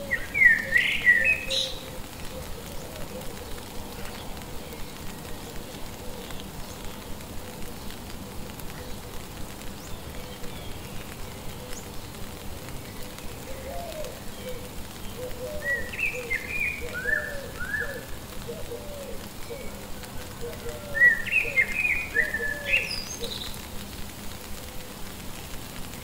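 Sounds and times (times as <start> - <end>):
bird chirping: 0.0 - 7.0, 12.9 - 19.8, 20.5 - 23.6
bird low calls: 0.0 - 23.8
rain falling: 0.0 - 26.0.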